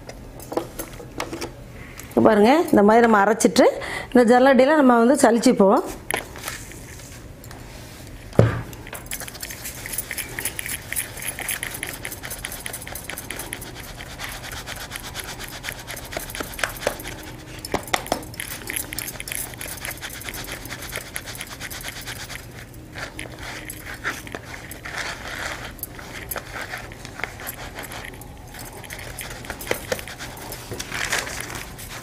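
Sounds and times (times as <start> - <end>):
loud thump: 8.4 - 8.7.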